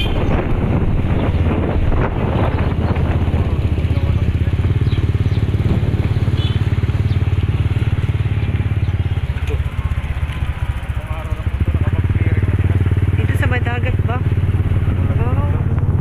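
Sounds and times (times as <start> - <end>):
motorcycle engine putter: 8.0 - 11.6.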